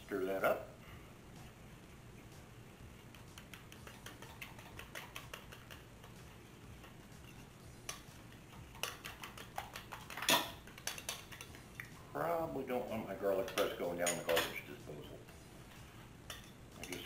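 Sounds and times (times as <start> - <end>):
metal utensil clinking in bowl: 16.3 - 17.0.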